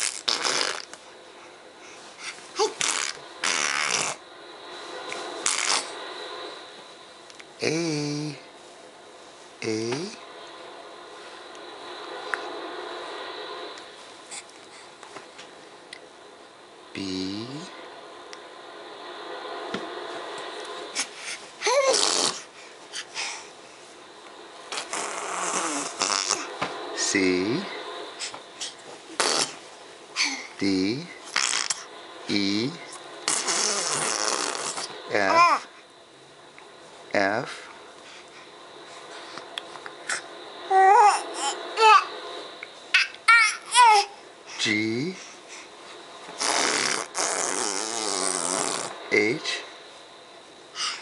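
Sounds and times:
baby breathy vocal noises: 0:01.9 - 0:04.2, 0:21.0 - 0:23.5, 0:40.0 - 0:42.1
baby spluttering: 0:02.6 - 0:04.2
man speaking: 0:07.6 - 0:08.5, 0:09.6 - 0:10.2, 0:17.0 - 0:17.8, 0:27.0 - 0:27.8, 0:30.6 - 0:31.2, 0:32.3 - 0:32.9, 0:35.0 - 0:35.6, 0:37.1 - 0:37.6, 0:44.6 - 0:45.2, 0:49.1 - 0:49.7
baby squealing: 0:43.0 - 0:44.1.

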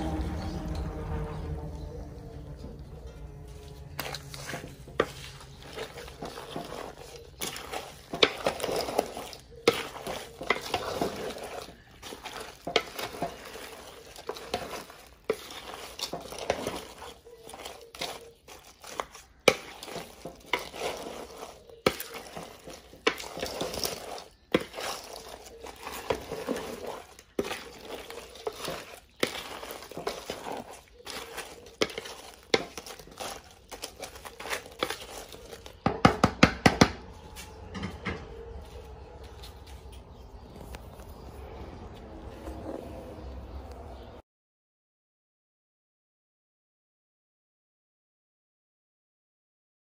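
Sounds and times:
spoon stirring shellfish in pot: 0:03.3 - 0:36.8.

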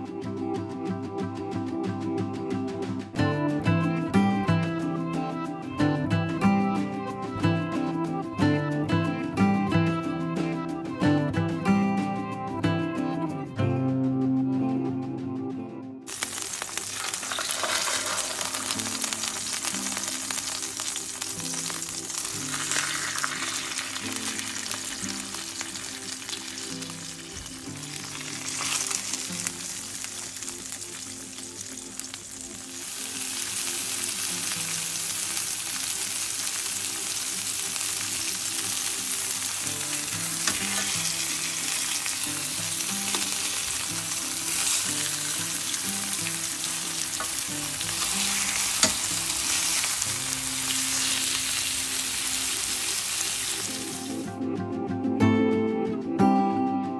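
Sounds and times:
chicken sizzling in hot oil: 0:16.1 - 0:54.3.

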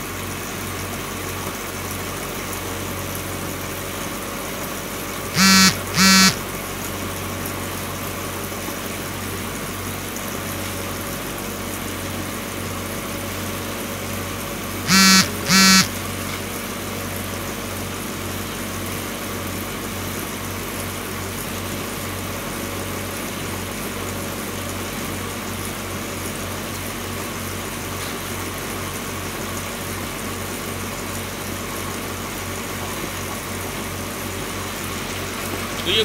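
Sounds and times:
conveyor belt motor humming: 0:05.3 - 0:06.6, 0:14.4 - 0:16.1
loud pitched beep: 0:05.4 - 0:06.4, 0:14.9 - 0:15.9.

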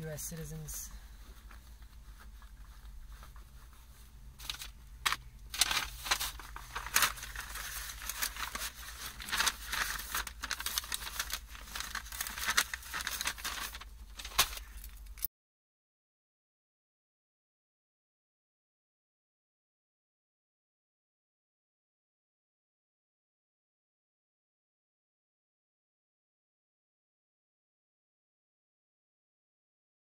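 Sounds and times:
paper rustling and crinkling: 0:01.2 - 0:15.3.

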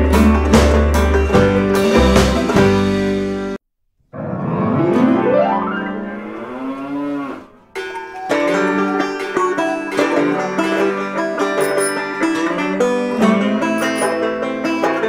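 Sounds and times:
upbeat plucked-string music: 0:00.0 - 0:03.6, 0:07.8 - 0:15.0
drawn-out sliding tone: 0:04.2 - 0:14.5.

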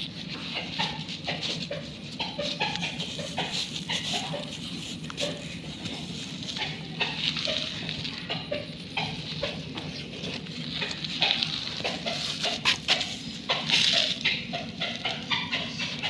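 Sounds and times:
young dog vocalizing: 0:00.6 - 0:16.0.

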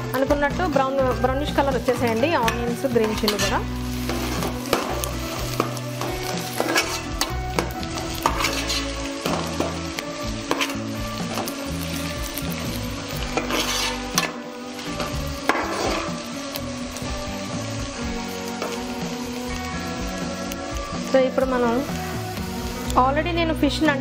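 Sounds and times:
oil sizzling: 0:00.0 - 0:24.0
ladle scraping a metal pot: 0:05.6 - 0:07.4, 0:08.2 - 0:09.1, 0:13.2 - 0:14.3.

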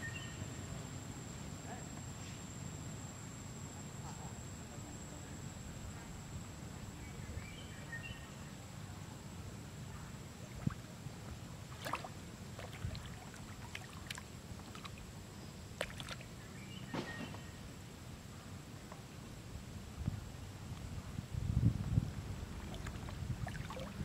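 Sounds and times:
water splashing: 0:11.7 - 0:15.1, 0:15.8 - 0:16.3, 0:22.6 - 0:24.0.

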